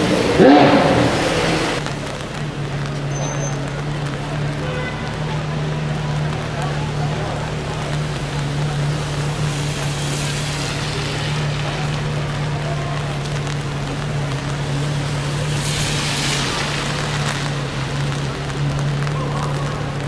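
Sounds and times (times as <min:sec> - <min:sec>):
car engine idling: 0:00.0 - 0:20.0
rushing hiss: 0:07.3 - 0:20.0.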